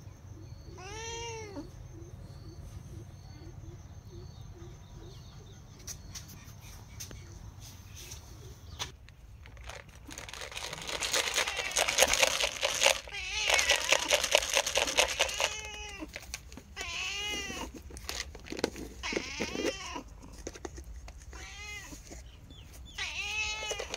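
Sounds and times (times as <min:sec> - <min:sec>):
cat meowing: 0:00.7 - 0:01.7, 0:12.8 - 0:14.2, 0:15.1 - 0:17.8, 0:21.3 - 0:22.0, 0:23.0 - 0:23.9.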